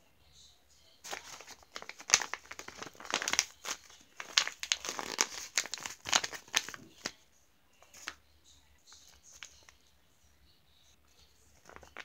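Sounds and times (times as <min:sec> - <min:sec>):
paper crinkling: 0:01.0 - 0:07.2, 0:07.8 - 0:08.2, 0:08.9 - 0:09.8, 0:11.5 - 0:12.0.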